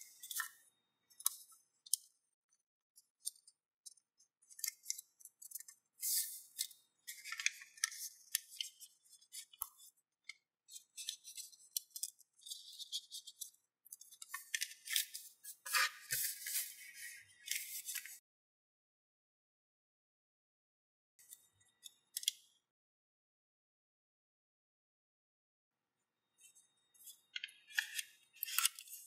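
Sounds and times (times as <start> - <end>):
paper rustling and crackling: 14.1 - 18.2.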